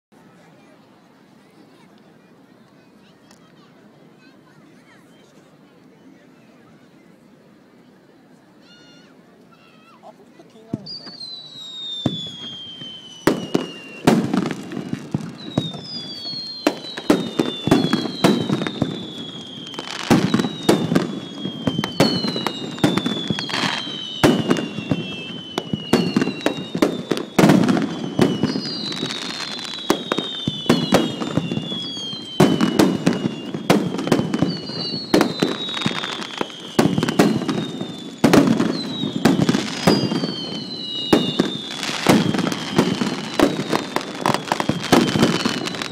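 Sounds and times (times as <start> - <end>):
fireworks bangs and crackling: 10.5 - 45.9
falling firework whistles: 10.7 - 45.9.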